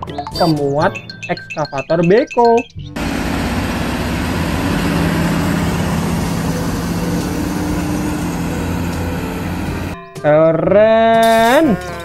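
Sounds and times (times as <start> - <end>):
constant hiss: 3.0 - 10.0
truck diesel engine under load: 3.0 - 10.0.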